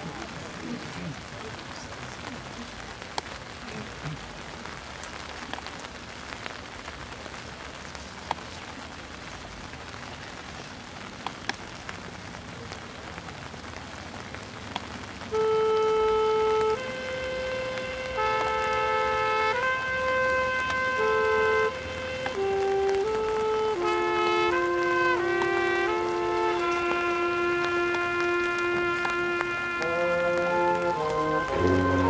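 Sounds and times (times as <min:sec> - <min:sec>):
steady rain falling: 0:00.0 - 0:32.0
marching band held chord: 0:15.3 - 0:32.0.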